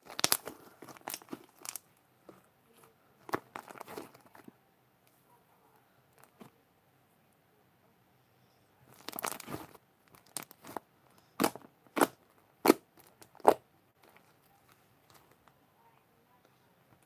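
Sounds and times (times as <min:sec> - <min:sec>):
slime popping: 0:00.0 - 0:01.8, 0:08.9 - 0:10.8, 0:11.4 - 0:14.4
slime squishing and crackling: 0:00.0 - 0:01.9, 0:03.2 - 0:04.5, 0:08.9 - 0:15.4.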